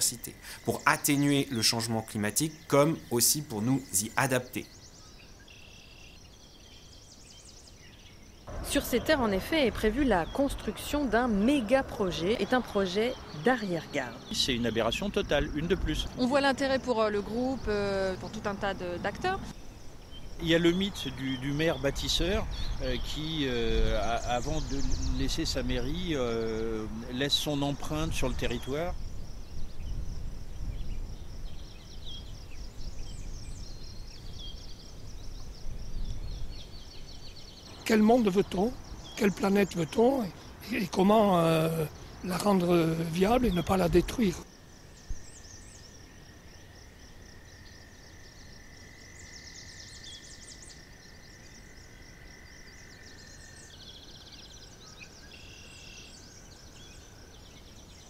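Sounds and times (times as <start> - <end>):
low steady hiss: 0.0 - 58.0
small birds singing: 0.0 - 58.0
low rumbling noise: 8.5 - 16.2.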